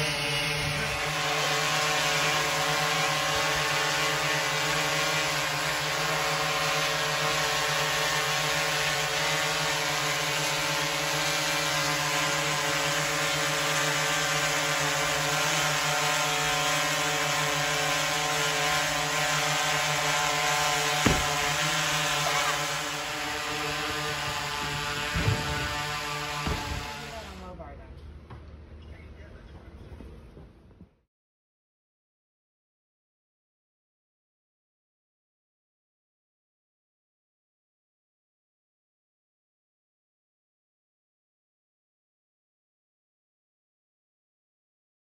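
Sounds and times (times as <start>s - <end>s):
steady mechanical hum: 18.4s - 31.0s
single thump: 21.0s - 21.5s, 26.4s - 26.8s.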